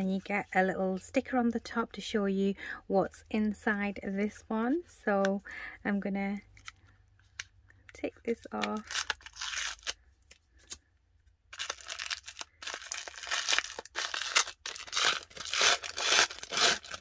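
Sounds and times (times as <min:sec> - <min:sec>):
tissue paper crinkling: 0:11.5 - 0:17.0
paper sticker ripping: 0:11.6 - 0:17.0.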